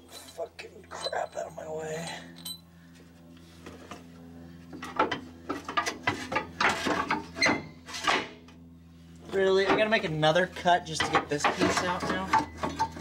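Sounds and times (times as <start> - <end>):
steady low hum: 0.0 - 13.0
exhaust pipe clunking and rattling: 9.4 - 10.2, 10.8 - 13.0.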